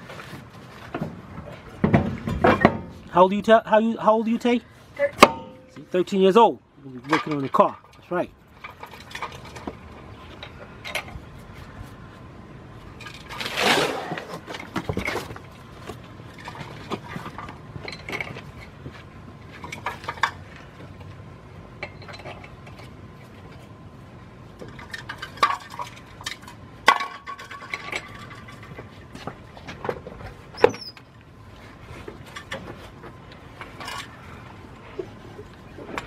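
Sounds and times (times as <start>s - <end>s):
lug nuts clinking on metal: 7.0s - 11.2s, 19.5s - 23.7s, 24.5s - 31.2s.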